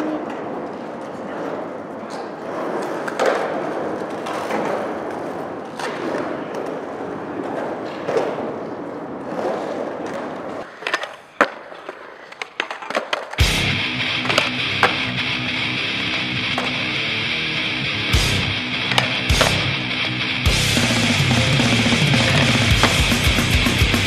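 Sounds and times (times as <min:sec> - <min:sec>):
skateboard wheels rolling on concrete: 0:00.0 - 0:24.0
skateboard trick clacks: 0:02.1 - 0:15.3, 0:15.9 - 0:17.0, 0:18.7 - 0:19.8, 0:21.6 - 0:24.0.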